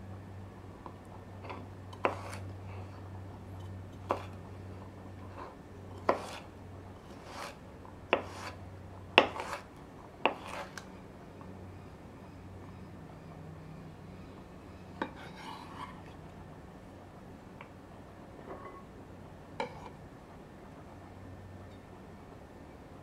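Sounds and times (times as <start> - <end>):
knife chopping on cutting board: 6.0 - 6.4, 8.1 - 8.6, 9.2 - 10.8.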